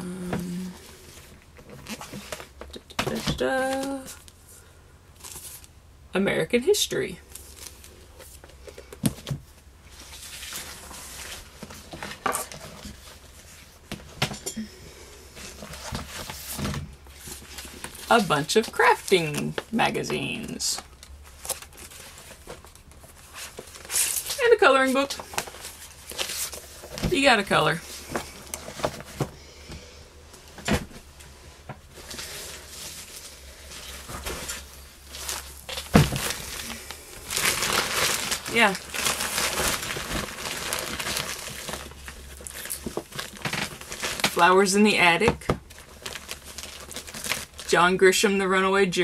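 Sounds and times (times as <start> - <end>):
books and magazines rustling: 0.4 - 5.8, 7.2 - 14.4, 15.1 - 47.8.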